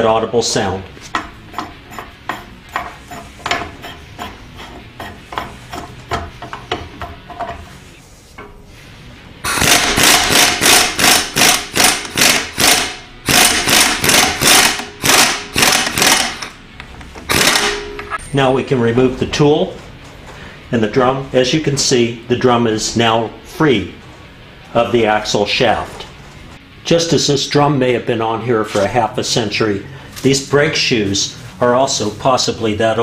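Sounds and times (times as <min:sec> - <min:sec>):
pneumatic impact wrench hammering: 0:09.4 - 0:16.6, 0:17.2 - 0:18.2.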